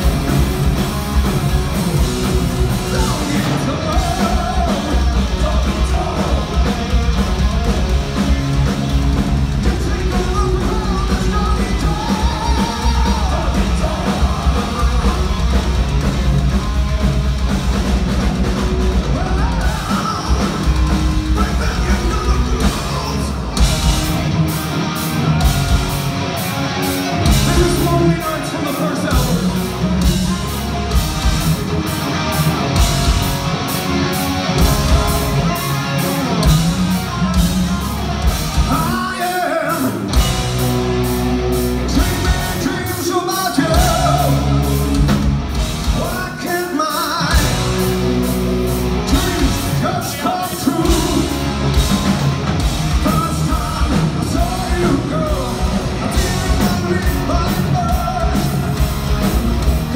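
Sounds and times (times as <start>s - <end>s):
heavy metal band playing live: 0.0s - 59.9s
person singing: 52.9s - 58.8s.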